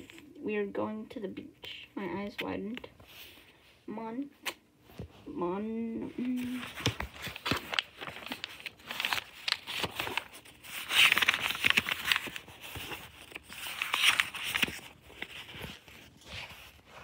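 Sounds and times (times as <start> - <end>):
book pages flipping: 6.2 - 17.0.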